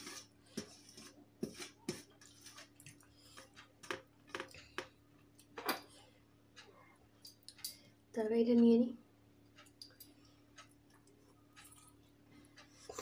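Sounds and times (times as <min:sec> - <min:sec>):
fingers mixing rice on steel plate: 0:00.0 - 0:04.9
faint steady hum: 0:00.0 - 0:13.0.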